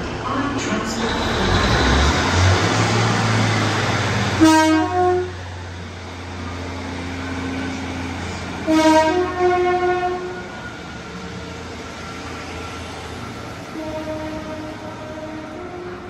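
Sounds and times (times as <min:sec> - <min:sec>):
train horn two-note blast: 0:04.4 - 0:05.4, 0:08.6 - 0:10.5, 0:13.8 - 0:16.0.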